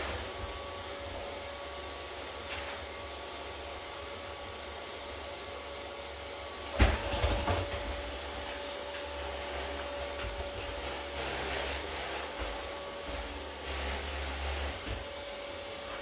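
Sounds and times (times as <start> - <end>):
robot vacuum whining hum: 0.0 - 16.0.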